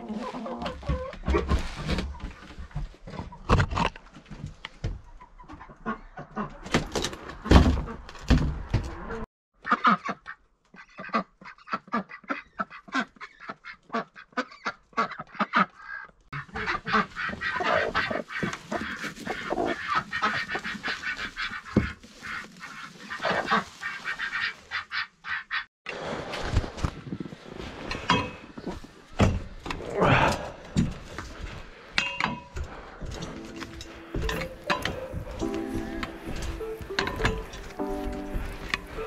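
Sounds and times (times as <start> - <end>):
hens clucking: 0.0 - 2.5, 5.1 - 6.6, 8.9 - 25.7, 32.4 - 39.0.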